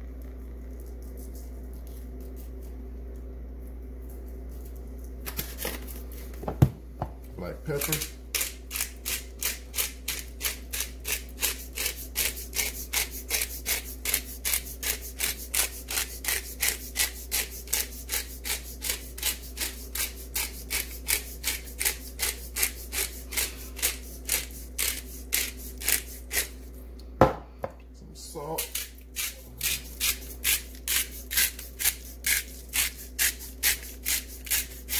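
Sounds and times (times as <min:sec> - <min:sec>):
pepper mill grinding: 0:07.7 - 0:26.7, 0:28.6 - 0:34.9.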